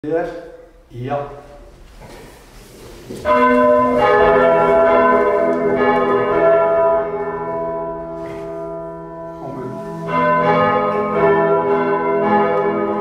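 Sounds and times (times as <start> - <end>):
church bells pealing: 3.2 - 13.0.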